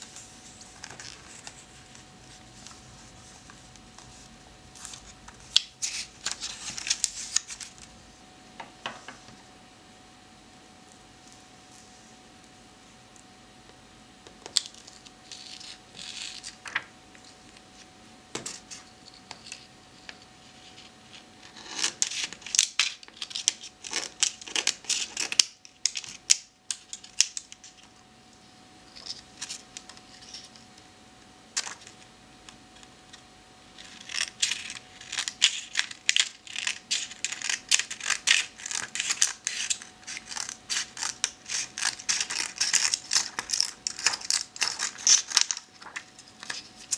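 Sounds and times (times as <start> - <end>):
scissors snipping paper: 33.8 - 46.9.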